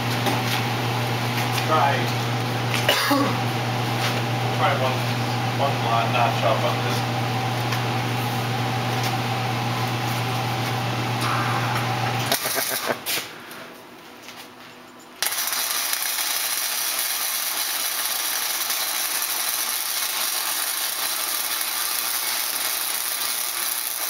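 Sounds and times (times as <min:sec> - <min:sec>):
welder low hum: 0:04.6 - 0:13.8, 0:15.2 - 0:24.0
welding arc crackling hiss: 0:11.2 - 0:13.4, 0:15.2 - 0:24.0.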